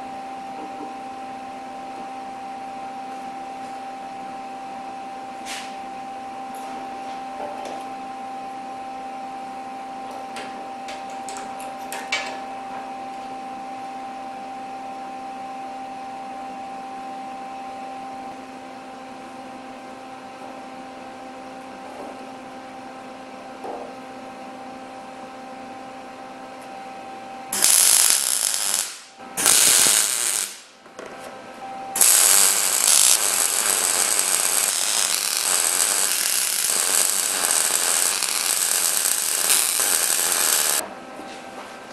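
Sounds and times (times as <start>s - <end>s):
machine hum: 24.3s - 41.9s
welding hiss: 27.5s - 30.7s, 32.0s - 40.8s.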